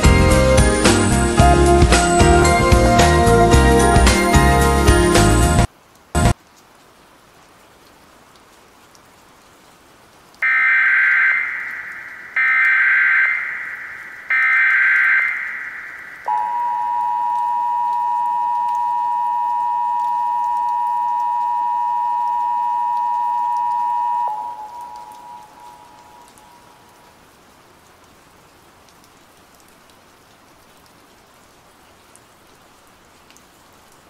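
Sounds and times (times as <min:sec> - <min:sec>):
data bursts: 0:10.4 - 0:25.8
two-tone attention signal: 0:16.3 - 0:26.0.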